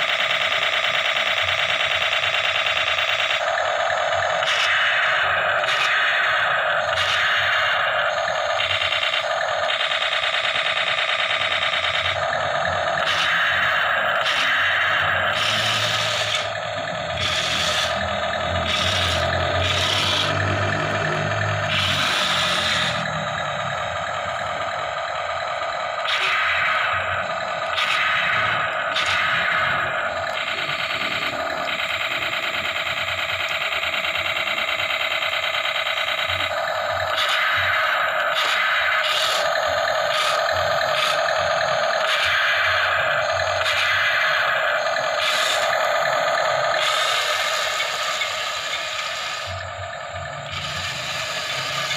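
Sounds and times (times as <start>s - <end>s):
toy gear motors whirring: 0.0s - 51.9s.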